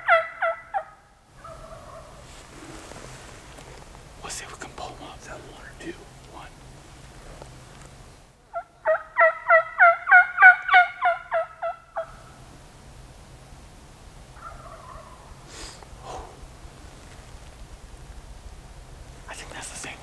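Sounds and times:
turkey calling: 0:00.0 - 0:02.2, 0:08.5 - 0:12.4, 0:14.3 - 0:16.9.

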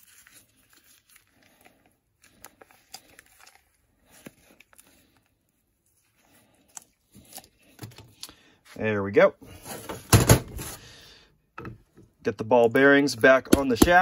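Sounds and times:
plastic packet crinkling: 0:00.0 - 0:05.2.

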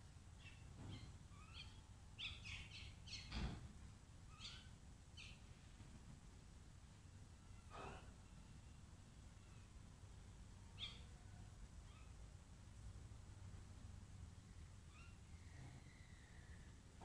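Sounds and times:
birds squawking and chattering: 0:00.4 - 0:03.5, 0:04.3 - 0:05.4, 0:10.8 - 0:11.2.

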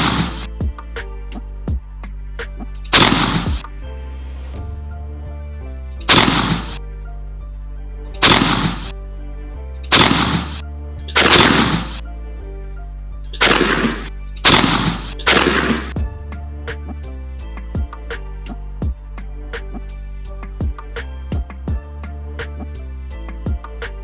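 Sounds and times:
shotgun shots: 0:00.0 - 0:00.5, 0:02.9 - 0:03.6, 0:06.1 - 0:06.8, 0:08.2 - 0:08.9, 0:09.9 - 0:12.0, 0:13.3 - 0:16.0.

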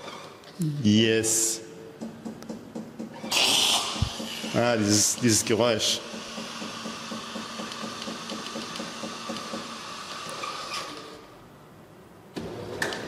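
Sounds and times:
coffee machine whirring: 0:02.2 - 0:11.3.

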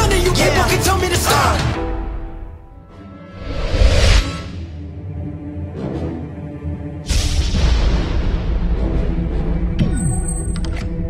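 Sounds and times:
dark trailer music: 0:01.6 - 0:11.0.

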